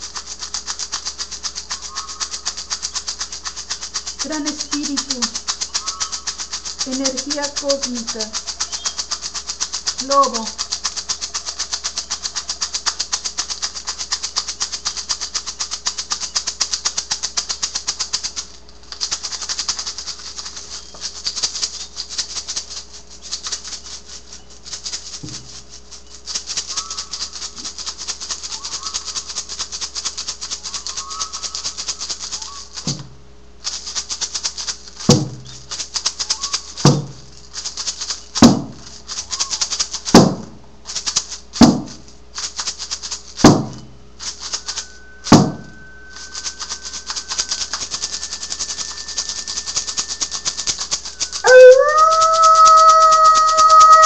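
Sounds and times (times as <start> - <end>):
hand rattle shaken fast: 0.0 - 54.0
frame drum beats: 4.0 - 14.2, 25.2 - 25.7, 32.7 - 33.3, 35.0 - 35.8, 36.7 - 37.5, 38.3 - 40.8, 41.6 - 42.1, 43.4 - 48.6, 49.2 - 54.0.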